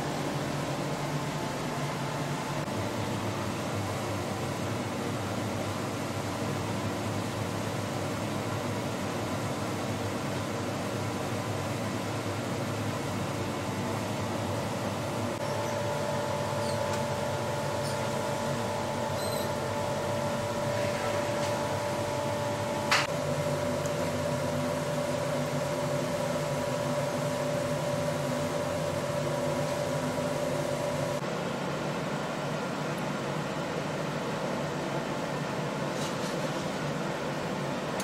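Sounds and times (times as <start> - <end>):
machine humming: 12.8 - 31.3.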